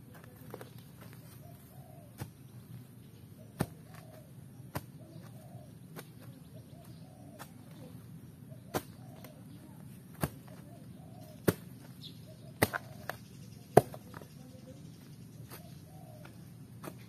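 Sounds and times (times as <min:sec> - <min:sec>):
spade chopping into dry soil: 0:02.1 - 0:02.5, 0:03.4 - 0:07.8, 0:08.6 - 0:09.4, 0:10.1 - 0:14.2, 0:15.4 - 0:17.0.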